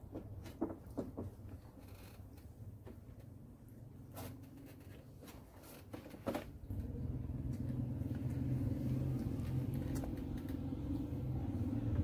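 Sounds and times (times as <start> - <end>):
low rumble: 6.7 - 12.0.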